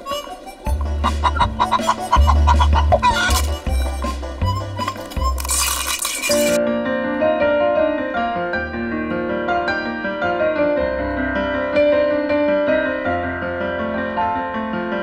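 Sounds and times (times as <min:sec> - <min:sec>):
piano playing a tune: 0:06.3 - 0:15.0.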